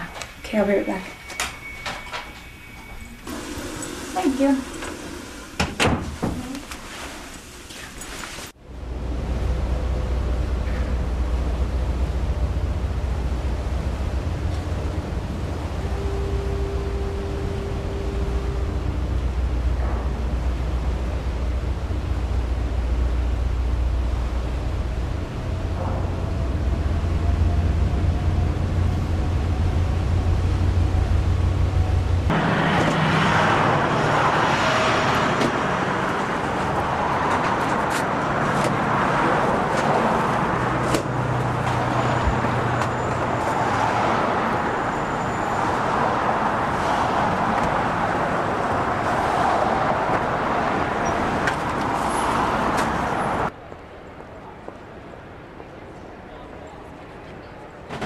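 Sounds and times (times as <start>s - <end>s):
street traffic: 0.0s - 58.0s
low steady rumble: 8.6s - 32.4s.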